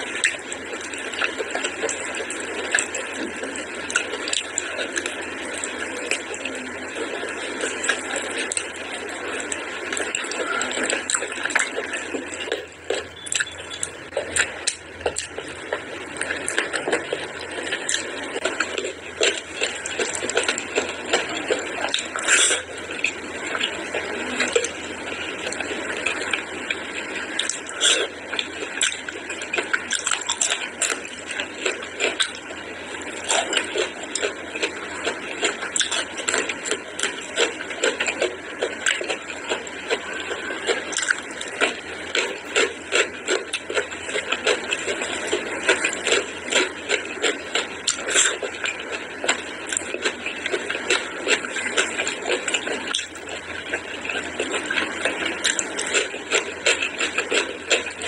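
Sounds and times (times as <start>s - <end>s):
wet chewing and lip-smacking: 0.0s - 58.0s.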